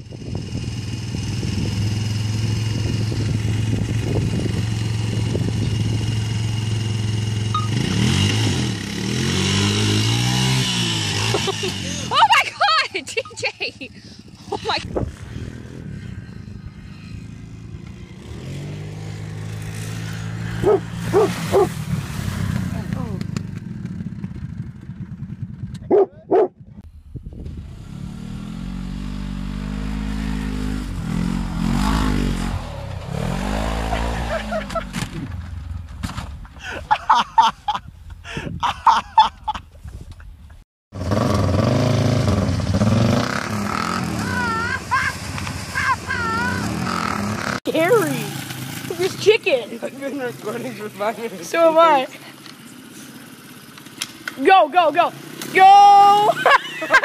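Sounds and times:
dirt bike engine running: 0:00.0 - 0:36.9, 0:41.0 - 0:57.0
wheels churning through mud: 0:00.1 - 0:25.4, 0:27.5 - 0:37.0, 0:41.0 - 0:57.0
people shouting: 0:44.1 - 0:45.1, 0:45.8 - 0:46.8, 0:55.5 - 0:56.5.

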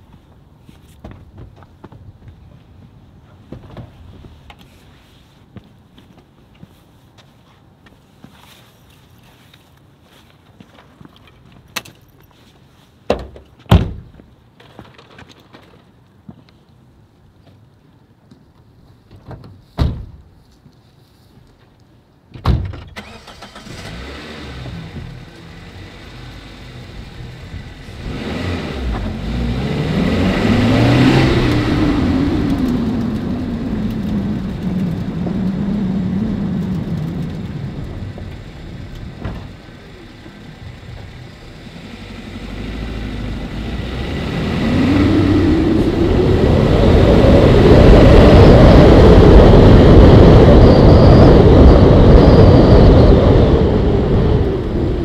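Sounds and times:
car engine starting and revving: 0:23.0 - 0:55.0.

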